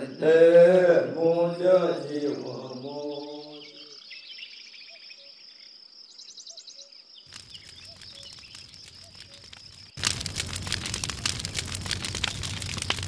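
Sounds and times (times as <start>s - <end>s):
fire crackling: 7.2s - 13.0s.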